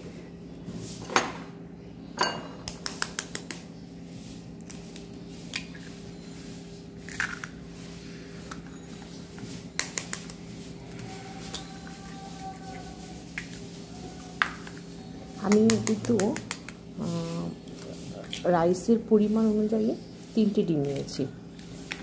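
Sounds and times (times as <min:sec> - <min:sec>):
eggs cracking on ceramic bowl: 0:14.4 - 0:14.9.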